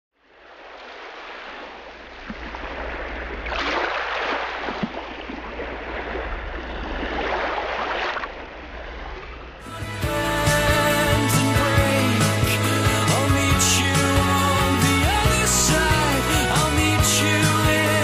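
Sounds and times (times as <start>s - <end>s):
water splashing along boat hull: 0.3s - 9.6s.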